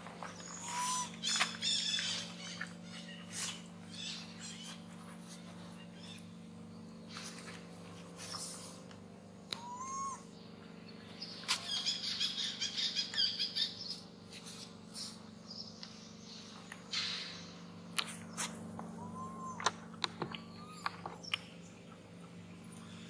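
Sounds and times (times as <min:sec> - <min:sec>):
birds chirping: 0:00.0 - 0:23.0.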